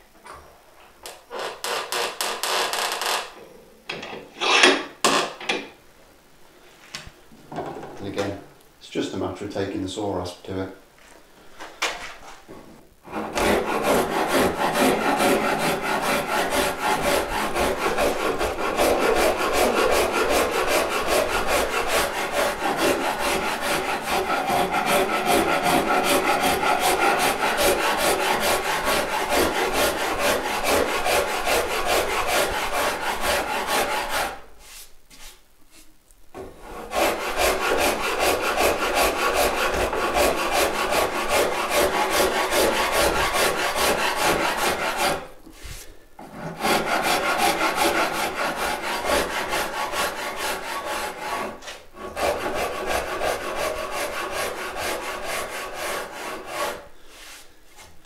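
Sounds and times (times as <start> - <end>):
rasp scraping wood: 13.1 - 34.4, 36.4 - 57.4.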